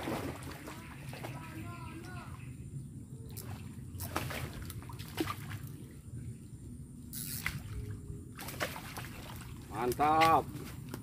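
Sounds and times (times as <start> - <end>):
fish splashing in water: 3.3 - 5.8, 7.2 - 10.9.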